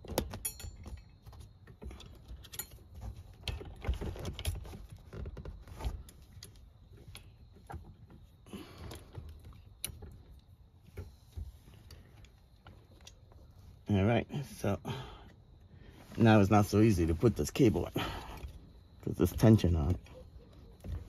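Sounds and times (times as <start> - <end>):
hands rattling metal seat frame: 0.0 - 13.5.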